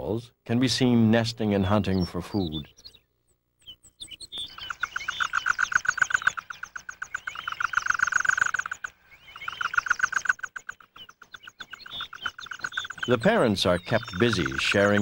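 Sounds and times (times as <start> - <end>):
owl chicks chirping: 0.8 - 15.0
owl chicks rattling calls: 3.6 - 15.0.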